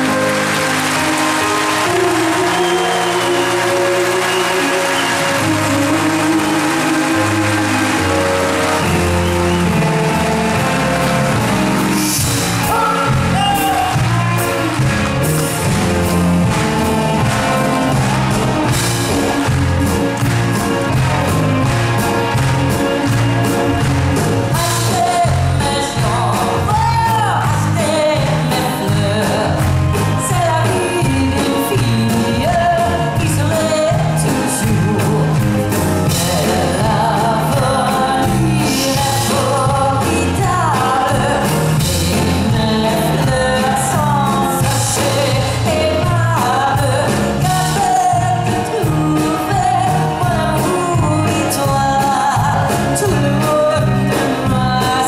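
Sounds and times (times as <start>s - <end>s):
live pop band playing: 0.0s - 55.0s
man and woman singing: 22.8s - 55.0s.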